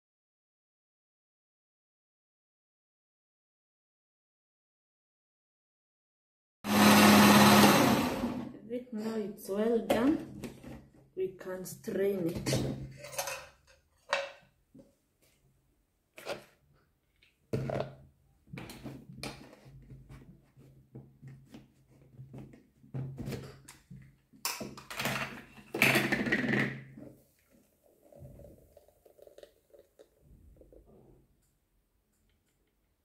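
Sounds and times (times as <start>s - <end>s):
blender jug and utensils clattering: 12.5s - 14.4s.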